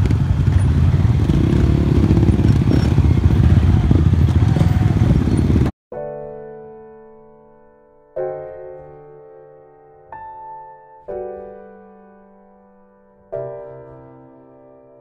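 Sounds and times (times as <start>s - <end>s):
motorcycles rumbling at low speed: 0.0s - 5.7s
piano chord ringing: 5.9s - 15.0s.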